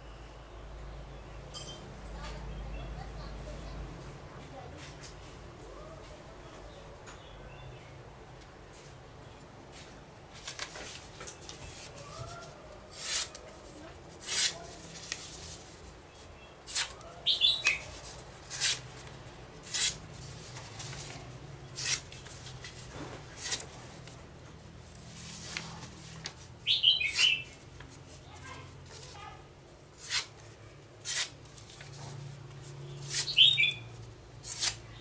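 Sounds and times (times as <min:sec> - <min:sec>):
hand tool scraping wood: 0:11.7 - 0:15.8, 0:16.7 - 0:17.0, 0:17.6 - 0:18.9, 0:19.6 - 0:21.2, 0:21.8 - 0:23.8, 0:30.0 - 0:30.3, 0:31.0 - 0:31.9, 0:34.4 - 0:34.8
bird chirping: 0:17.2 - 0:18.0, 0:26.6 - 0:27.6, 0:32.8 - 0:33.9.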